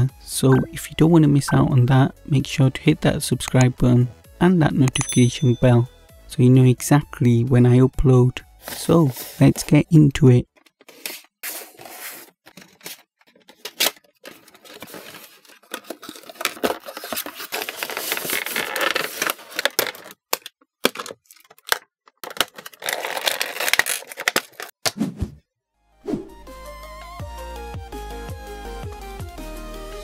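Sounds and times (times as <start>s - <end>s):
plastic packaging crinkling: 12.6s - 24.7s.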